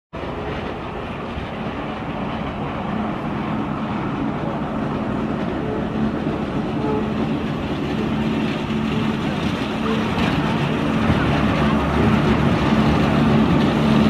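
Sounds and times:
tram running on rails: 0.1 - 14.0.

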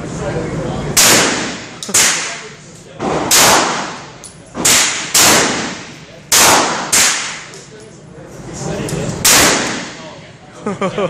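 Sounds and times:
shotgun firing with echo: 1.0 - 2.4, 3.0 - 7.5, 9.2 - 10.1.

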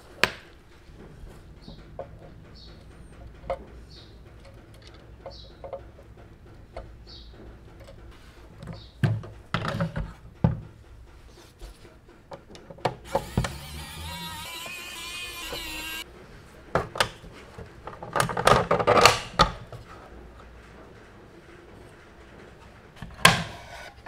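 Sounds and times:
power tool whirring: 13.0 - 16.0.

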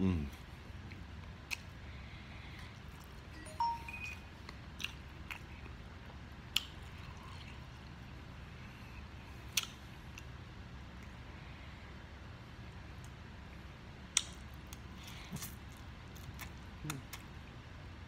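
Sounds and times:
person chewing noodles: 4.5 - 10.3.

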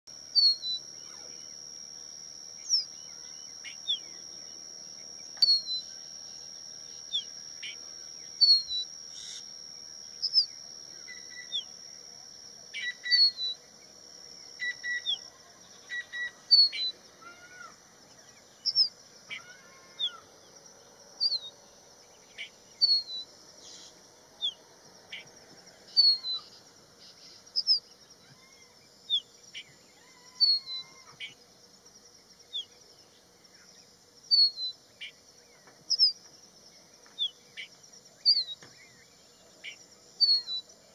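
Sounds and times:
steady high whine: 0.1 - 19.3
bird chirping: 2.5 - 17.0, 17.6 - 20.3, 21.2 - 25.3, 32.4 - 40.9.

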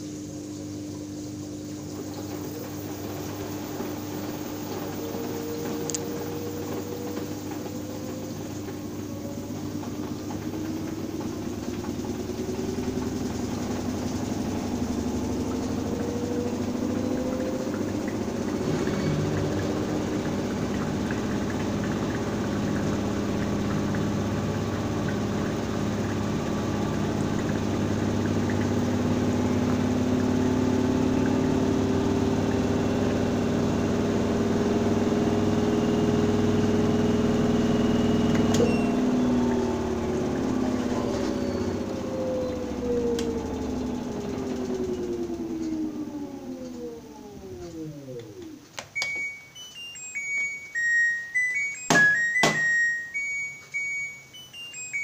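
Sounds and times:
washing machine drum whining: 0.0 - 55.0
washing machine click: 1.8 - 31.8, 36.3 - 50.8, 51.5 - 54.1.

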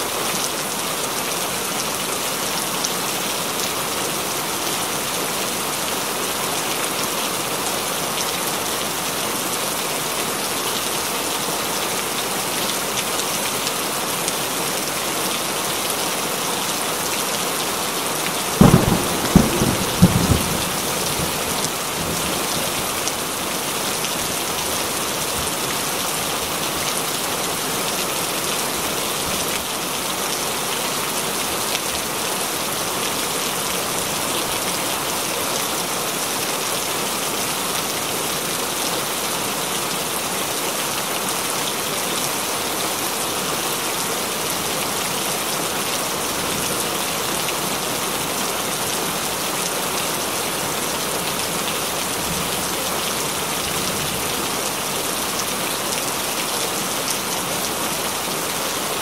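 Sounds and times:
heavy rain: 0.0 - 59.0
thunderclap rumbling: 18.6 - 21.4.

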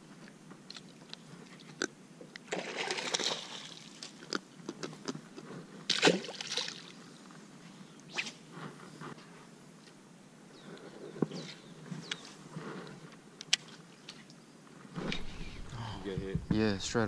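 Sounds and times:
water splashing: 2.5 - 4.2, 5.9 - 7.0.

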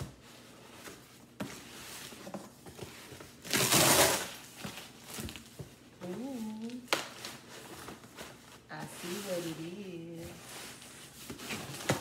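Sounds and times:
cardboard ripping: 3.1 - 5.5.

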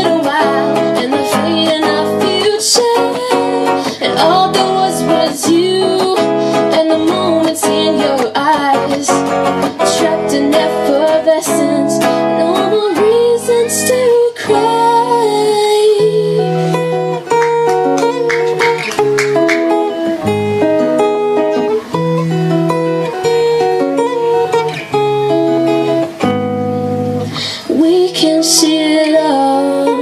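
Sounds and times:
woman singing: 0.0 - 18.8, 27.3 - 30.0
guitar melody: 0.0 - 30.0
guitar strumming: 0.0 - 30.0.

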